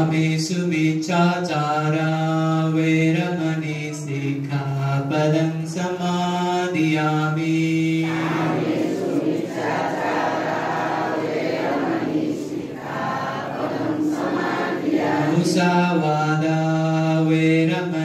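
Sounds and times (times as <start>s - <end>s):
group chanting: 6.2s - 18.0s.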